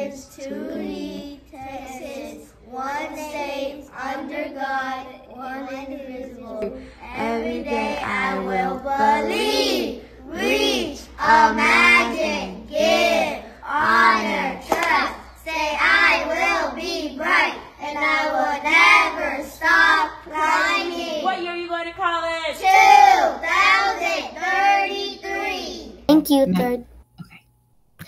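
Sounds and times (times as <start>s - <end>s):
children chanting in unison: 0.0s - 21.3s, 22.6s - 25.9s.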